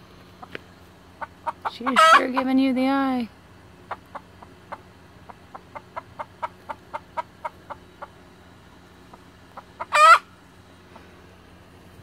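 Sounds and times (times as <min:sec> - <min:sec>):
chicken squawk: 0:01.2 - 0:02.5, 0:09.6 - 0:10.3
chicken clucking: 0:01.2 - 0:02.6, 0:03.8 - 0:08.2, 0:09.1 - 0:10.3.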